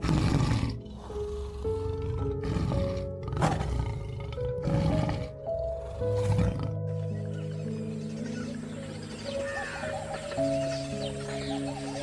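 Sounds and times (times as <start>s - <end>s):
tigers growling: 0.0s - 7.6s
background music: 0.0s - 12.0s.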